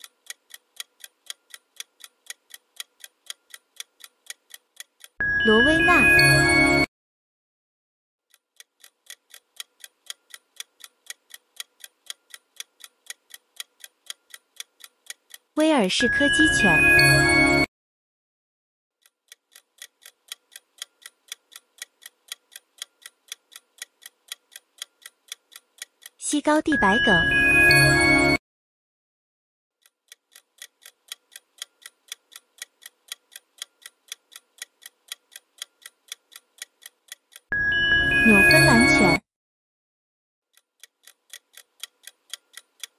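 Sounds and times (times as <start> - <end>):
clock ticking: 0.0 - 6.9, 8.3 - 17.7, 19.0 - 28.4, 29.8 - 37.5, 38.3 - 39.2, 40.5 - 42.9
countdown timer ticking: 5.0 - 6.9, 15.6 - 17.7, 25.5 - 28.4, 37.3 - 39.2.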